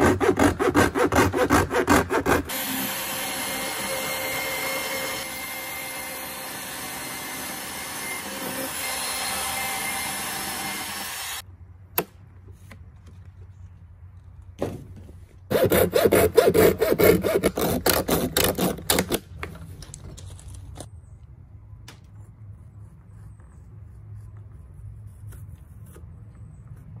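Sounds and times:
band saw cutting plastic: 15.5s - 19.2s.

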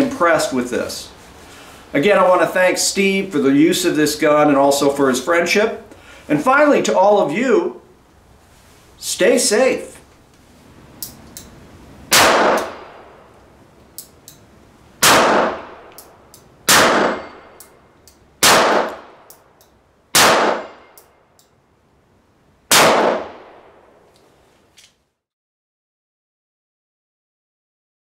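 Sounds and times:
faint revolver clicks: 14.0s - 14.4s, 15.9s - 16.5s, 18.9s - 19.8s
revolver shots ringing: 16.7s - 17.6s, 20.2s - 21.0s.

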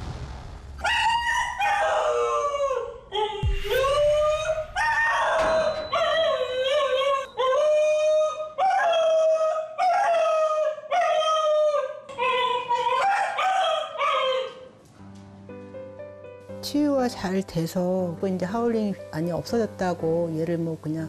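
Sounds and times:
dog howling: 1.0s - 14.7s.

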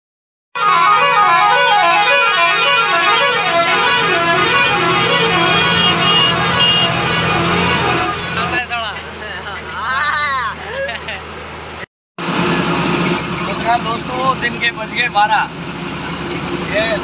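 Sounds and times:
truck musical horn: 0.6s - 8.8s
low engine hum: 2.4s - 17.0s.

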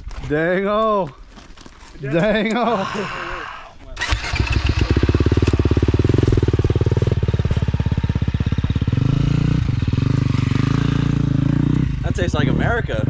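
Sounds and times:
dirt bike engine idling: 4.0s - 12.8s.

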